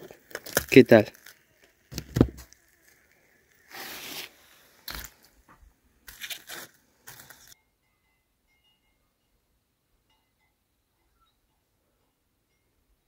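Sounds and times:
knife carving crusty meat: 0:00.2 - 0:05.1.

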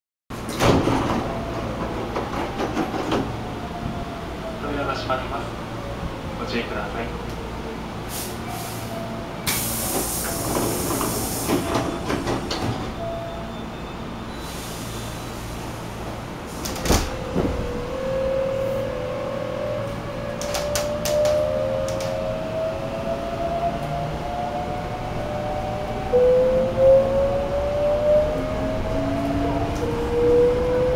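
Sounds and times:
compressed air hiss: 0:09.5 - 0:11.6.

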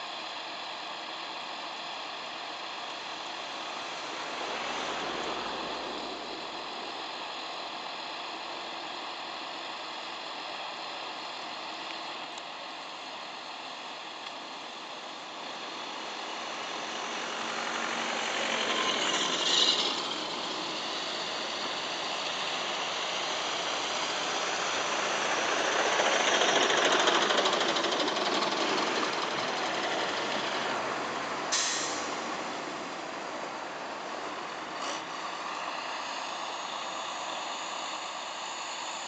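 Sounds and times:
lorries driving past: 0:00.0 - 0:39.0
short hiss: 0:31.5 - 0:32.4.

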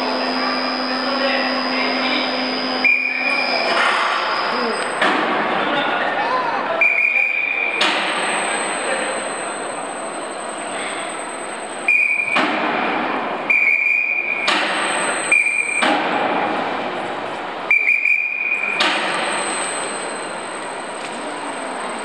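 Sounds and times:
faint high whine: 0:00.0 - 0:05.0.

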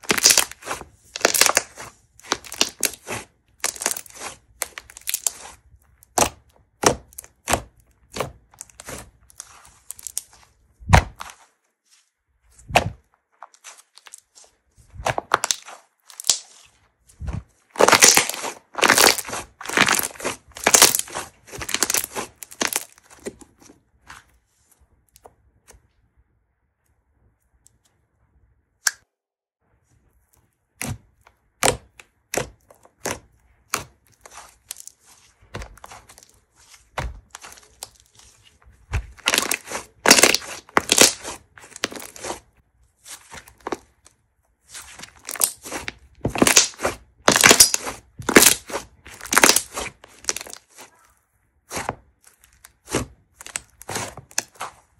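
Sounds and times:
slime crackling and popping: 0:00.0 - 0:11.4, 0:13.4 - 0:16.6, 0:17.7 - 0:23.4, 0:30.8 - 0:42.5, 0:43.1 - 0:54.9.

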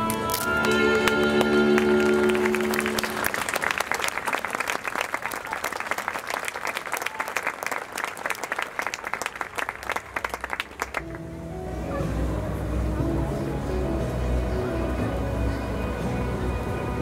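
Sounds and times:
show music: 0:00.0 - 0:05.4, 0:09.6 - 0:17.0
audience applauding: 0:00.0 - 0:11.3.

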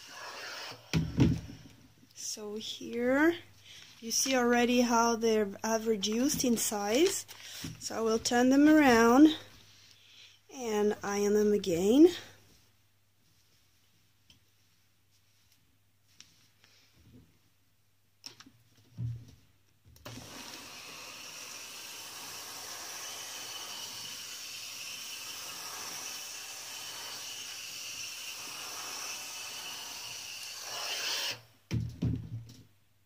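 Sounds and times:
steam iron hissing: 0:00.0 - 0:01.0, 0:20.1 - 0:31.5
thump: 0:00.9 - 0:01.7, 0:31.7 - 0:32.6.

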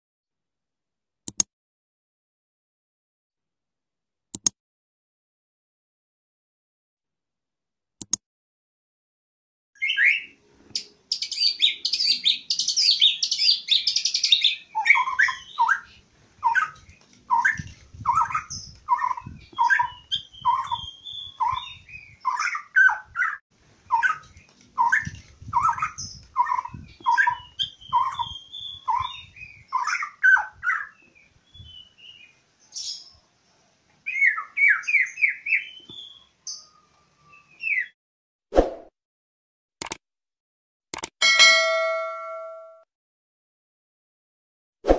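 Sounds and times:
bird singing whistled notes: 0:09.8 - 0:23.4, 0:24.8 - 0:33.2, 0:34.1 - 0:38.0.

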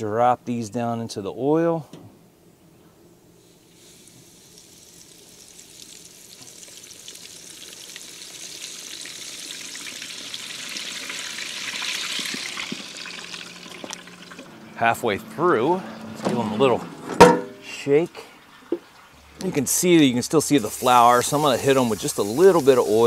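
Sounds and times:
chicken sizzling in deep-fryer oil: 0:03.4 - 0:14.5, 0:20.5 - 0:23.0.

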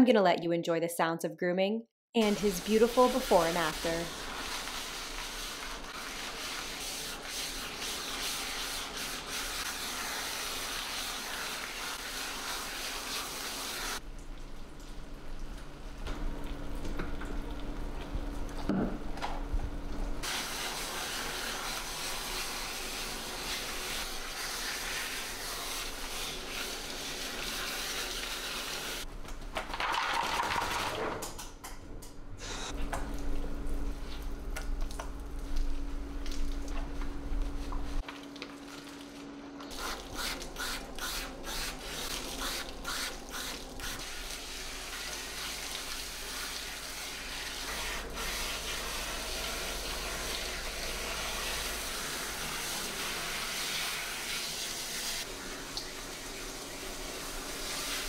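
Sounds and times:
water spraying from hose: 0:02.2 - 0:14.0, 0:20.2 - 0:29.0, 0:39.7 - 0:58.0.

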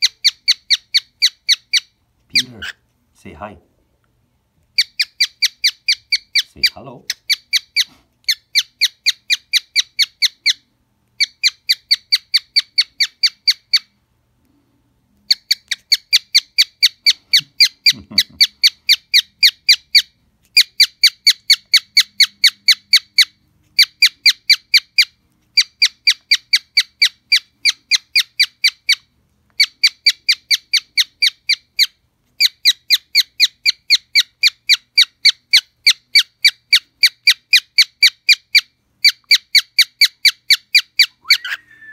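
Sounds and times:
cockatiel chirping: 0:00.0 - 0:02.8, 0:04.7 - 0:14.0, 0:15.3 - 0:41.9.

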